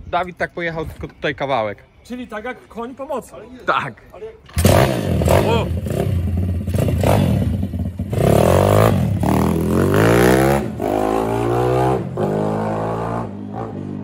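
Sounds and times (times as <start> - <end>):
motorbike engine revving: 4.5 - 14.0.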